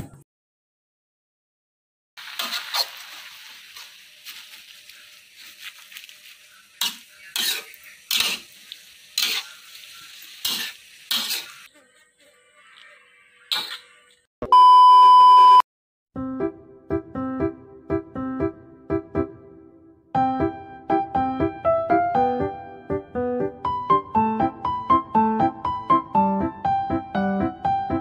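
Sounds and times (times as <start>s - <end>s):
greens sizzling in a wok: 2.2s - 11.7s
metal spatula scraping wok: 6.8s - 11.7s
steady electronic beep: 14.4s - 15.6s.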